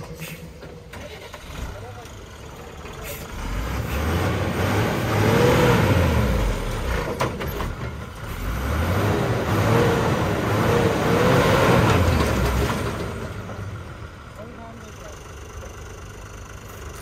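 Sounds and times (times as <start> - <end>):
drilling truck engine revving: 3.0 - 14.0.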